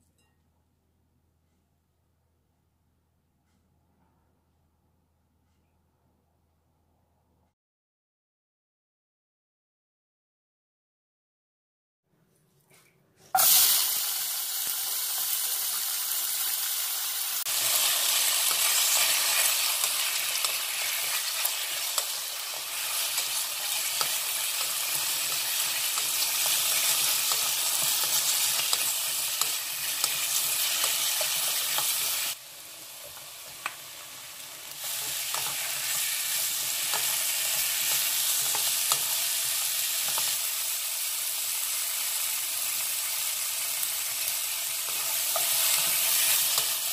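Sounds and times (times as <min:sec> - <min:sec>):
vegetables sizzling in oil: 0:13.3 - 0:46.9
spatula scraping and tapping pan: 0:18.4 - 0:32.3, 0:34.8 - 0:40.4, 0:44.8 - 0:46.8.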